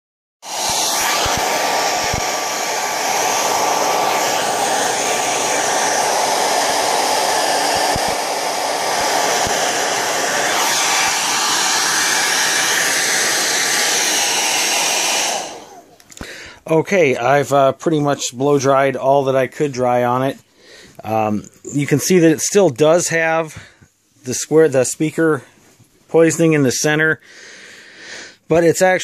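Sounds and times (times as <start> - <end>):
hair dryer blowing: 0.4 - 16.3.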